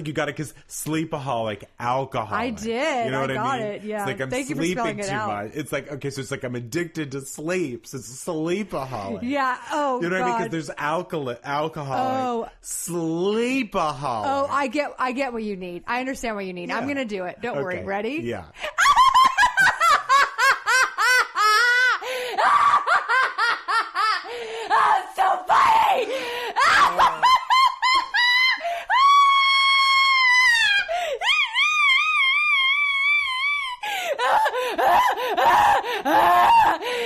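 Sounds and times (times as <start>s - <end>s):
woman laughing: 18.7s - 24.4s, 26.6s - 29.1s
woman shrieking: 21.4s - 23.4s, 24.7s - 37.0s.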